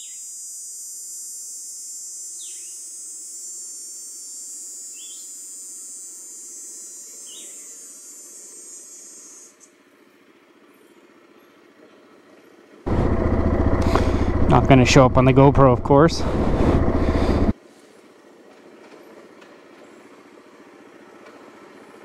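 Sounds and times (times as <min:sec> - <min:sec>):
distant atv engine running: 0:12.9 - 0:17.6.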